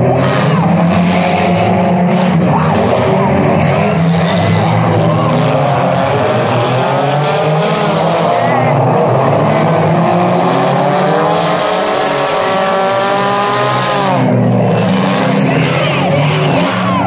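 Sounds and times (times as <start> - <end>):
car engines revving: 0.0 - 17.0.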